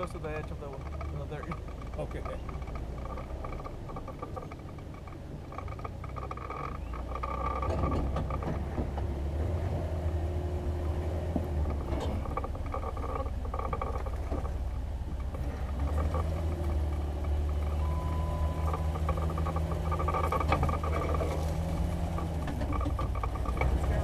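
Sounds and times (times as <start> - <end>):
faint vehicle knocks: 0.0 - 9.5
off-road vehicle engine droning: 0.0 - 24.0.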